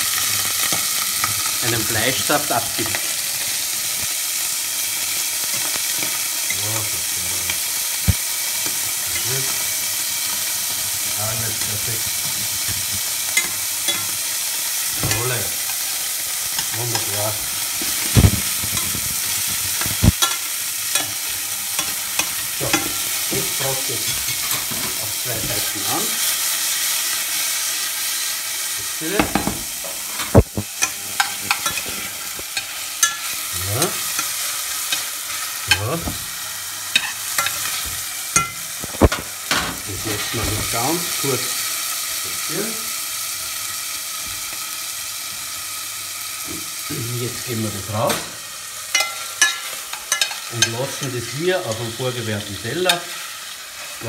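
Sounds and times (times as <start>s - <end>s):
meat sizzling in oil: 0.0s - 54.0s
metal utensil clicking on pan: 19.8s - 23.1s, 30.1s - 35.9s, 36.9s - 37.8s, 48.9s - 50.8s
metal tongs clicking on pan: 21.8s - 23.1s, 48.9s - 50.8s.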